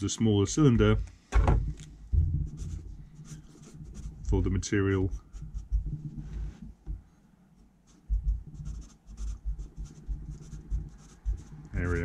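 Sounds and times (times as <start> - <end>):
soft thuds on desk: 1.3 - 2.4
marker pen writing on paper: 2.5 - 6.6, 7.9 - 12.0.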